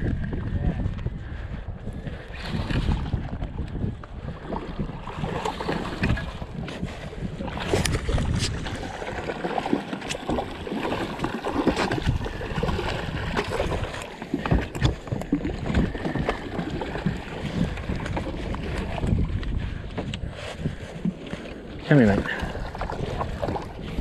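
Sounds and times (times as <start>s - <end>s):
water lapping at boat hull: 0.0s - 24.0s
wind on microphone: 0.0s - 24.0s
fish splashing and thrashing: 2.0s - 24.0s
fishing gear knocks and clicks: 13.4s - 20.2s.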